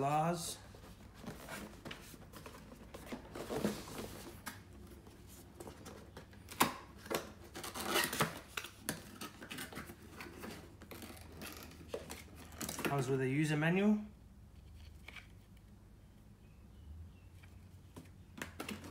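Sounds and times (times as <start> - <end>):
cardboard box scraping and rustling: 0.8 - 4.4.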